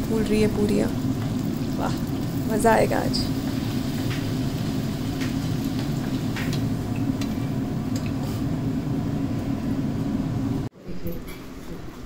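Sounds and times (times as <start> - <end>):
bread sizzling in hot oil: 0.0 - 10.6.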